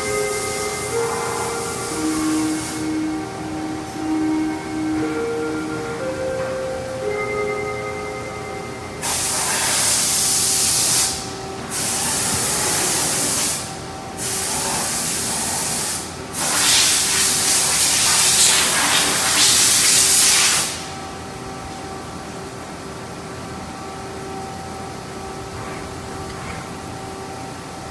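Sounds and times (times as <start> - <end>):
coolant spraying hiss: 0.0 - 3.1, 9.0 - 20.9
faint machine whine: 0.0 - 27.9.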